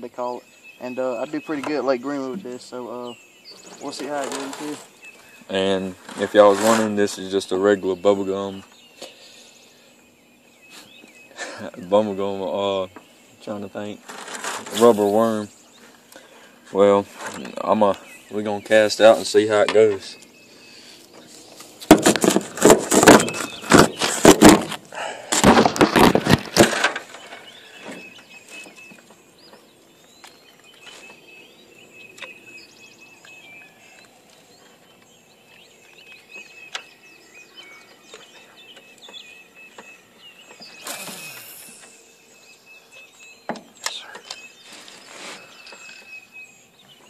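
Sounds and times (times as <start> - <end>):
birds chirping: 0.0 - 47.0
faint insect trill: 39.9 - 46.7.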